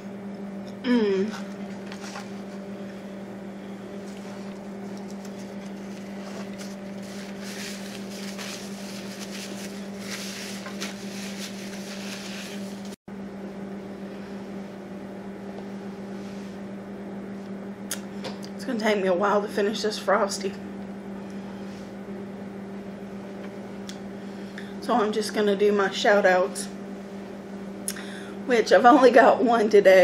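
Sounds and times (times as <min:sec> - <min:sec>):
low room hum: 0:00.0 - 0:30.0
paper napkin crinkling: 0:04.0 - 0:13.0.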